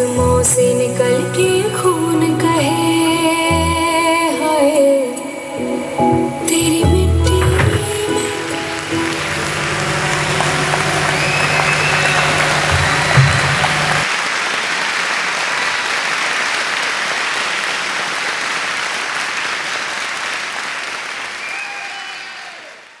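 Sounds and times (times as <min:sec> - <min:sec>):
audience applauding: 0:07.4 - 0:23.0.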